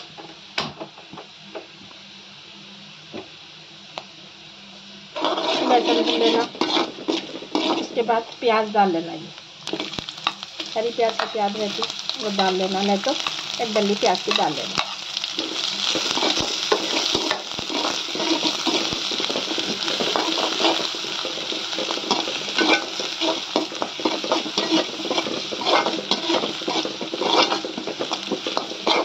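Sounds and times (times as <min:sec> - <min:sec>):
onions sizzling in oil: 0:00.0 - 0:29.0
spatula scraping a metal pan: 0:05.2 - 0:08.0, 0:14.3 - 0:29.0.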